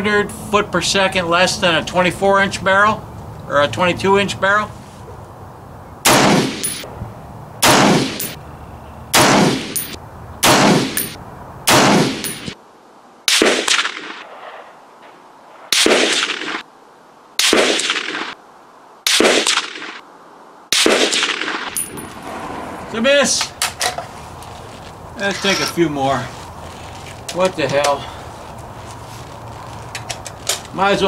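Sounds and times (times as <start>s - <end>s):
rifle shots: 6.0s - 6.8s, 7.6s - 8.4s, 9.1s - 12.6s, 13.3s - 14.6s, 15.7s - 16.7s, 17.4s - 18.4s, 19.1s - 20.0s, 20.7s - 22.8s.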